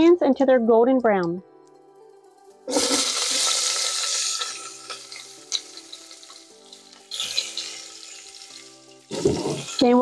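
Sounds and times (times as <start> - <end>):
onions sizzling in oil: 2.7 - 10.0.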